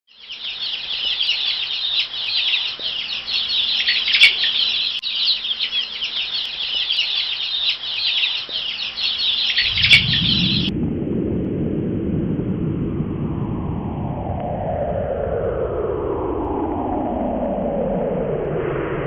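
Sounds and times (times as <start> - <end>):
small birds chirping: 0.1 - 10.7
low rumble: 9.6 - 19.0.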